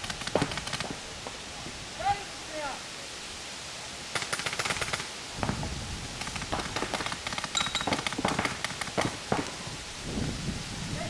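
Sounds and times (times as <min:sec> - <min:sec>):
paintball markers firing: 0:00.0 - 0:01.0, 0:06.2 - 0:09.6.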